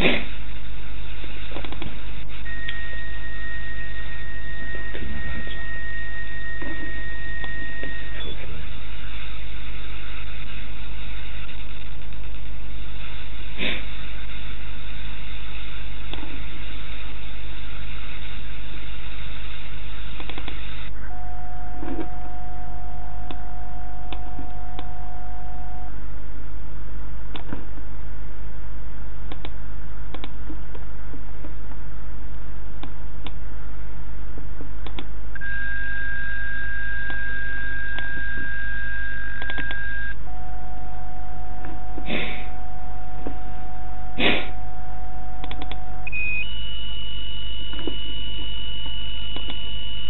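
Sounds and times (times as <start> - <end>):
low hum: 0.0 - 50.0
radio static hiss: 0.0 - 50.0
high whistle tone: 2.4 - 8.5, 35.4 - 50.0
faint clicks: 20.2 - 20.7, 29.3 - 30.8, 34.8 - 35.4, 45.4 - 45.8.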